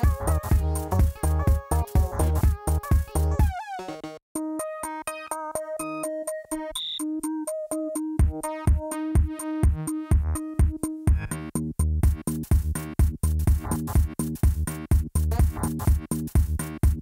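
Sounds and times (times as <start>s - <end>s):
deep bass beat: 0.0s - 3.5s, 8.2s - 17.0s
electronic music with drum machine: 0.0s - 17.0s.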